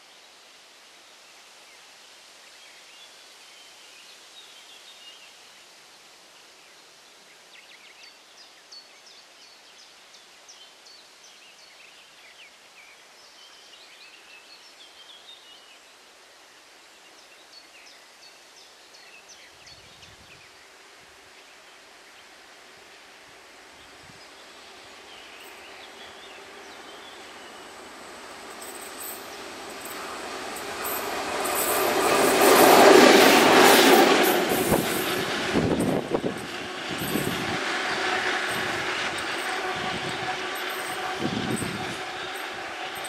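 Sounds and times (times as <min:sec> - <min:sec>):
diesel locomotive passing: 0:22.2 - 0:43.0
train wheels knocking: 0:26.4 - 0:43.0.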